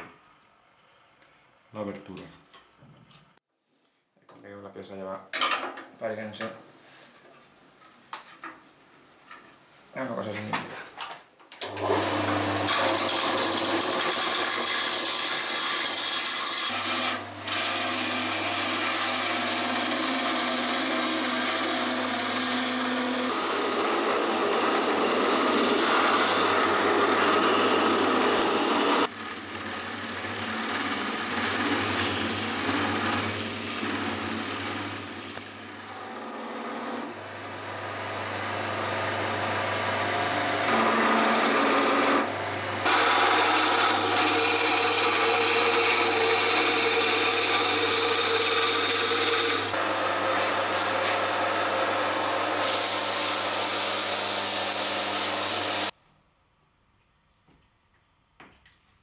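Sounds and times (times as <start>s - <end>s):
tool scraping spinning wood: 12.7s - 29.5s, 30.2s - 37.1s, 40.6s - 51.5s
lathe motor humming: 17.5s - 29.1s, 37.5s - 52.6s.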